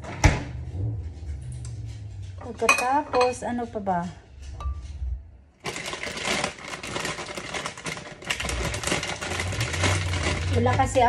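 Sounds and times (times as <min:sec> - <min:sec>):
rustling and clattering rummaging: 0:05.6 - 0:11.0.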